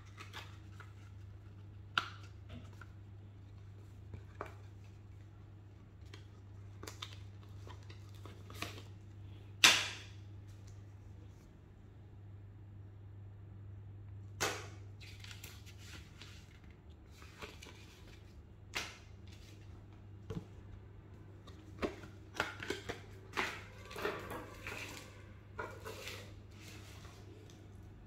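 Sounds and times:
low steady hum: 0:00.0 - 0:28.0
packaging rustling and scraping: 0:21.4 - 0:27.6.

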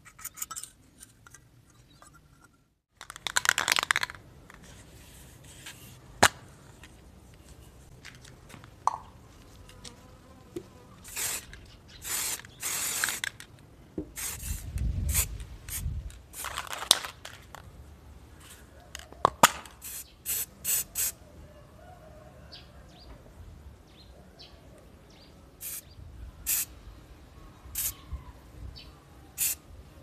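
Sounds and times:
spray can hissing: 0:11.0 - 0:13.4, 0:14.2 - 0:16.6, 0:19.8 - 0:21.2, 0:25.6 - 0:25.8, 0:26.5 - 0:26.7, 0:27.8 - 0:28.0, 0:29.4 - 0:29.6.

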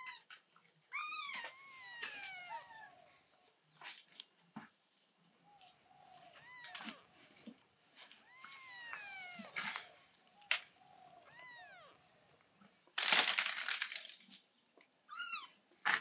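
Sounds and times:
kittens meowing: 0:00.0 - 0:03.1, 0:06.1 - 0:07.2, 0:08.1 - 0:10.0, 0:11.0 - 0:12.0, 0:15.1 - 0:15.6.

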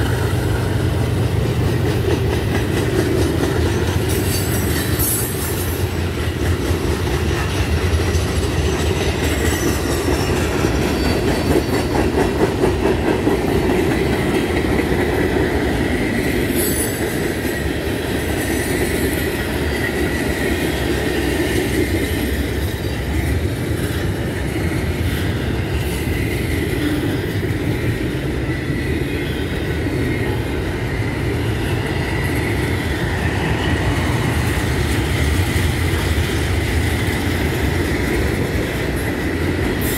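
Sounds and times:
wheels clicking over rail joints: 0:00.0 - 0:29.0
train wheels rumbling on rails: 0:00.0 - 0:39.9.

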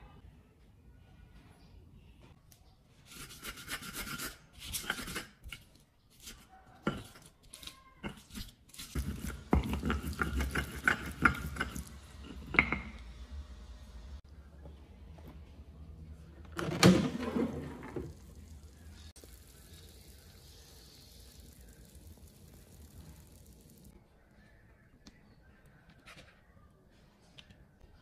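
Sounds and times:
stone pestle grinding in mortar: 0:08.0 - 0:12.8.

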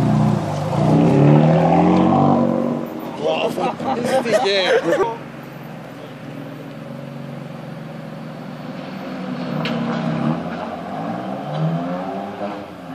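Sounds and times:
car engine running: 0:00.0 - 0:10.0.

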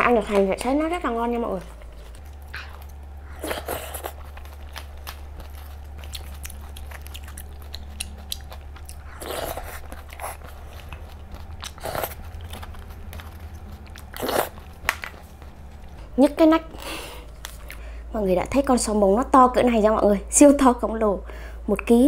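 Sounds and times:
close chewing mouth clicks: 0:01.9 - 0:16.0.

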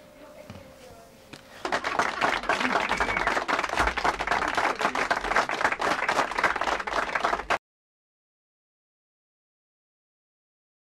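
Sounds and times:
audience applause: 0:01.6 - 0:07.6.

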